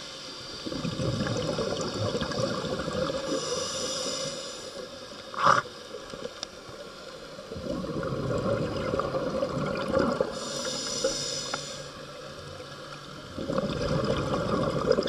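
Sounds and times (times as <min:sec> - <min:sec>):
regulator inhalation hiss: 0:00.0 - 0:00.9, 0:03.2 - 0:05.7, 0:10.3 - 0:12.1
exhaled air bubbling underwater: 0:00.0 - 0:15.0.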